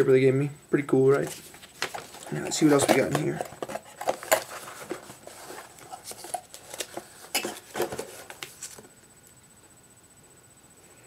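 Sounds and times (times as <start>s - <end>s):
paper and cardboard packaging rustling: 1.1s - 8.9s.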